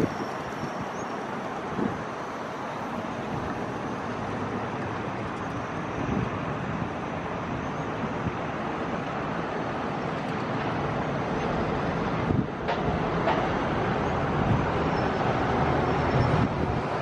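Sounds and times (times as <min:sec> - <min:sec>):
freight train rumbling: 0:08.0 - 0:17.0.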